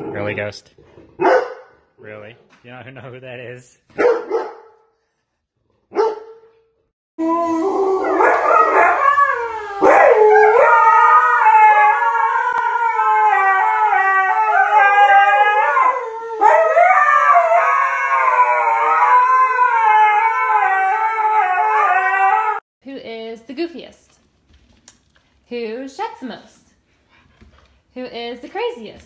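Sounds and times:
dog barking: 1.2 - 1.8, 4.0 - 4.8, 5.9 - 6.5
dogs howling together: 7.2 - 22.6.

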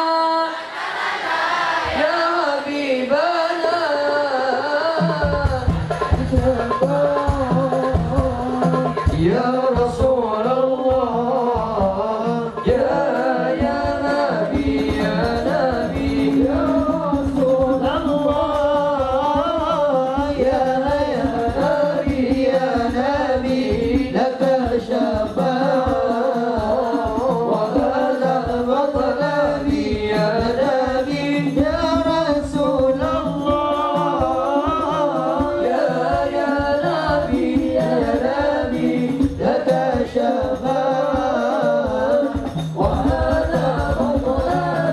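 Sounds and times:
men singing into microphones: 0.0 - 44.9
frame drum percussion: 4.8 - 44.9.

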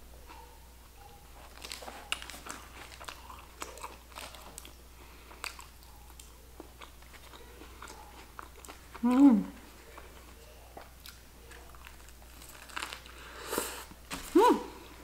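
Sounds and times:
sandwich paper wrapper rustling: 1.1 - 5.6, 11.4 - 15.0
chewing clicks and crackles: 1.4 - 9.2, 9.8 - 13.2.

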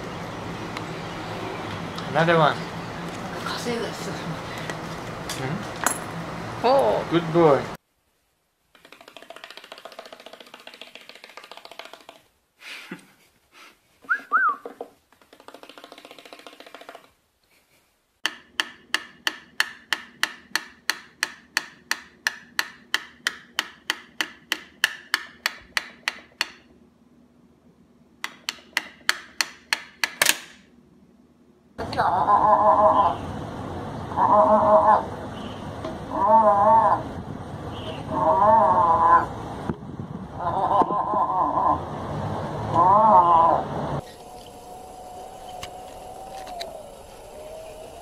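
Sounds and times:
cockatiel whistles: 14.1 - 14.7.

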